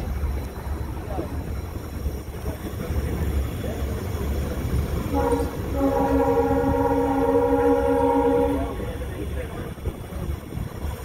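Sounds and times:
train rumbling: 0.0 - 11.0
locomotive air horn: 5.1 - 8.8.

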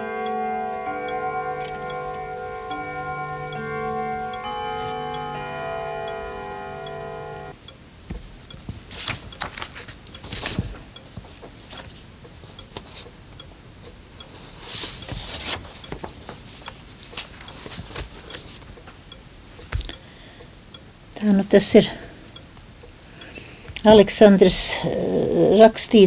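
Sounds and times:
paper rustling: 8.7 - 10.8, 14.4 - 18.6.

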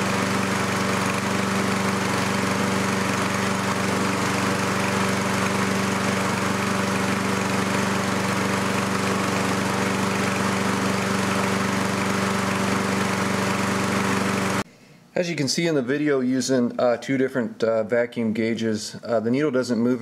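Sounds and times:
lawnmower engine running: 0.0 - 14.6.

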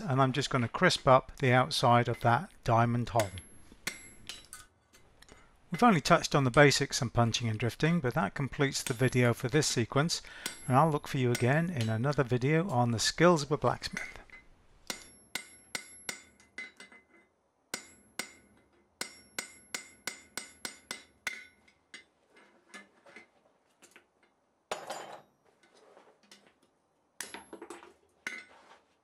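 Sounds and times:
hammer striking hot steel on anvil: 3.2 - 4.7, 8.8 - 9.3, 10.4 - 12.1, 14.0 - 17.0, 17.7 - 22.1.

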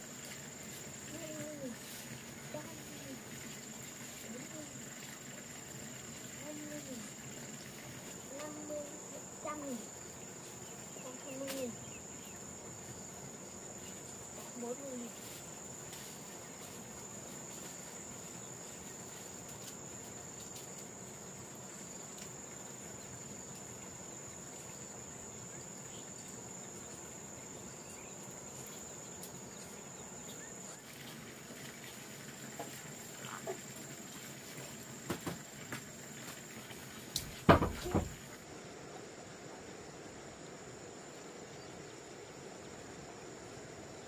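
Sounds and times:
insects trilling: 0.0 - 44.0
knocks: 37.4 - 38.2.

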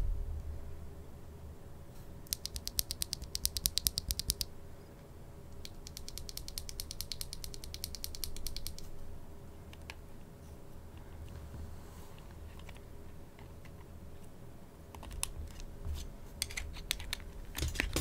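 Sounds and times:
keyboard switch clicks: 2.3 - 4.5, 5.6 - 8.9.

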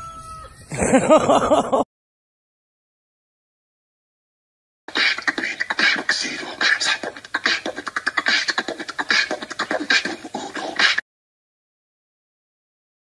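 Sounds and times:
beatboxing: 4.9 - 11.0.

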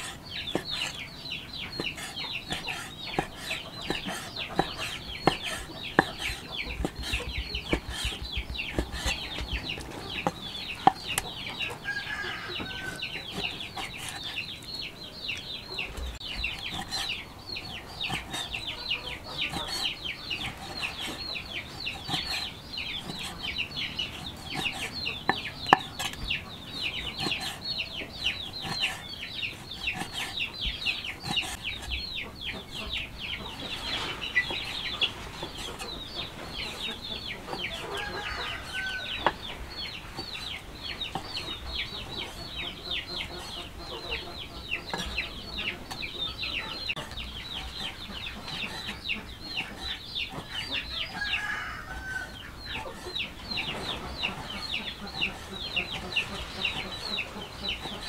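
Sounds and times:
chicks peeping: 0.0 - 58.0
cleaver chopping on wooden board: 1.8 - 9.5.

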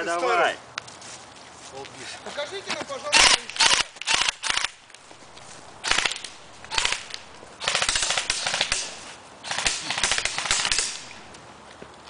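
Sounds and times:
airsoft rifle firing bursts: 3.2 - 4.8, 5.8 - 11.3.

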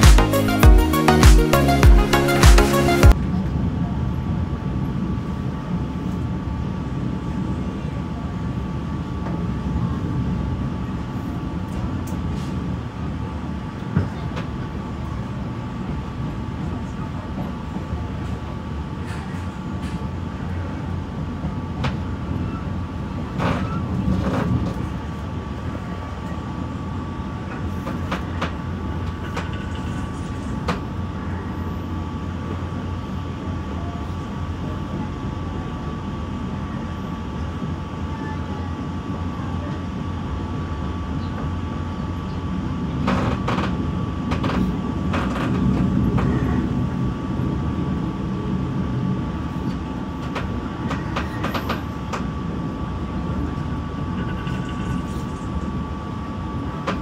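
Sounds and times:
train rumbling along track: 3.1 - 57.0
clicks and knocks of train: 13.8 - 15.2, 16.6 - 20.1, 21.3 - 22.2, 23.3 - 26.4, 27.4 - 31.0, 43.0 - 46.7, 49.6 - 52.3, 56.8 - 57.0.

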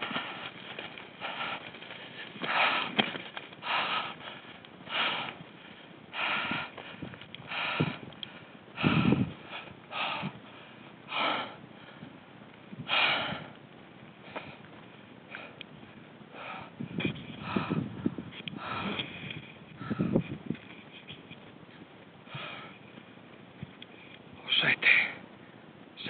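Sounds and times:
person breathing hard: 0.0 - 12.2, 12.8 - 13.6, 14.2 - 14.7, 15.3 - 15.6, 16.3 - 20.3, 22.2 - 22.8.

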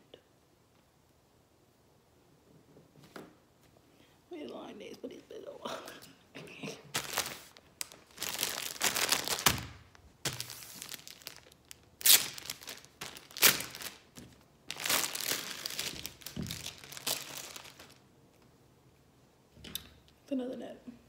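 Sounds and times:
plastic packaging crinkling: 6.9 - 18.0.

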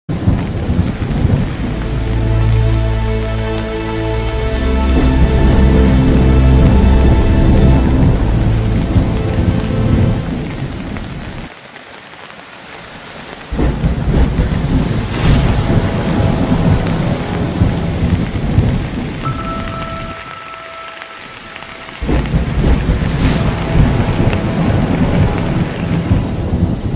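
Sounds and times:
rushing water with deep rumble: 0.1 - 26.9
background music: 1.3 - 11.0, 14.7 - 26.9
sharp crack: 13.4 - 19.3.

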